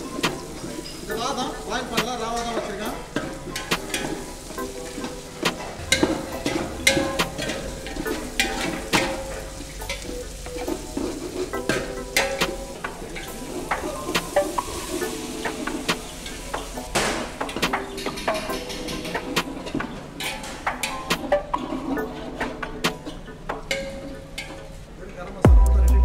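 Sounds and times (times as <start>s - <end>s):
vegetables sizzling in oil: 0.0s - 19.3s
metal ladle scraping pot: 2.8s - 24.8s.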